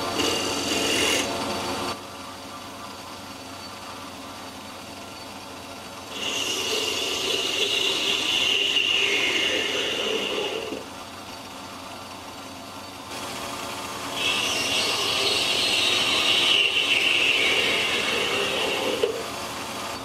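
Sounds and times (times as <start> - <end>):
metal lathe cutting whine: 0.0 - 1.9, 6.0 - 20.0
metal lathe running: 0.0 - 2.0, 3.2 - 20.0.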